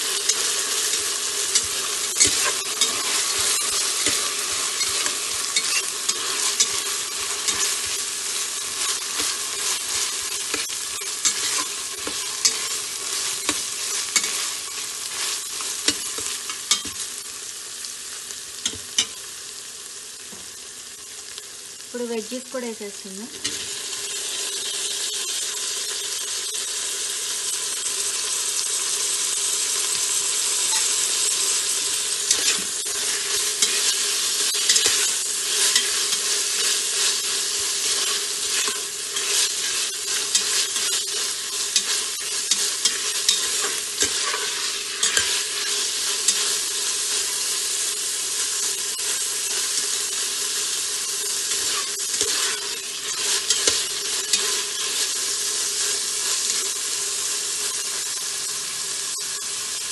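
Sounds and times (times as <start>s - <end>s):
vegetables sizzling in hot oil: 0.0s - 59.9s
spoon scraping and clicking on pot: 0.2s - 8.0s, 8.8s - 12.7s, 33.6s - 36.8s.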